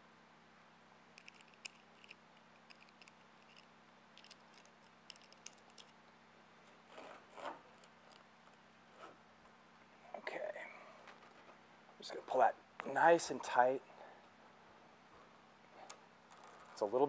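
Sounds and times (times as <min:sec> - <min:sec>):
metal buckle clicks: 0:01.2 - 0:06.0
strap webbing scraping: 0:06.8 - 0:08.3, 0:08.9 - 0:09.2.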